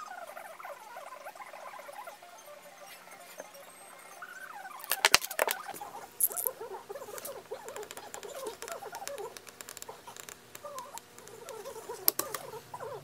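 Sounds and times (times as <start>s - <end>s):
clicks and knocks: 4.8s - 5.6s.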